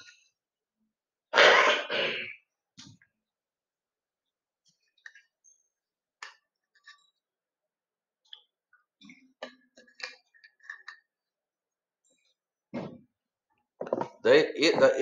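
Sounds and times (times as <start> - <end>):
light clicks and handling noises: 8.2 - 11.2.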